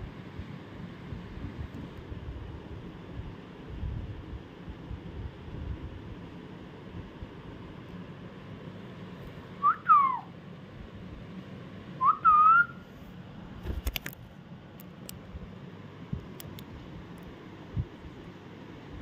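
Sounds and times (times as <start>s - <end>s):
parrot whistling: 9.6s - 10.3s, 12.0s - 12.8s.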